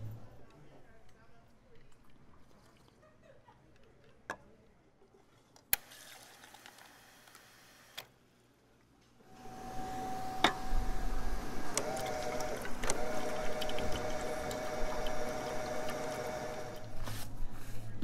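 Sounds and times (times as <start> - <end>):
soda fountain machine humming: 9.3 - 17.0.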